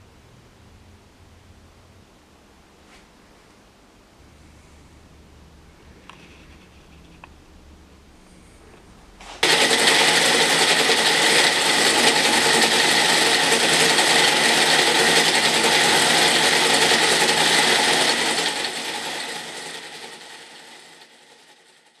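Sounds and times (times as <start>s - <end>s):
wood lathe running: 9.4s - 22.0s.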